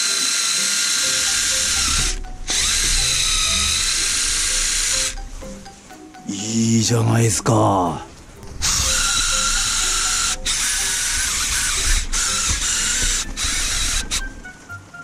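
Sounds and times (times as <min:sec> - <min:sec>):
abrasive wheel whirring on metal: 0:00.0 - 0:05.9, 0:08.1 - 0:14.7.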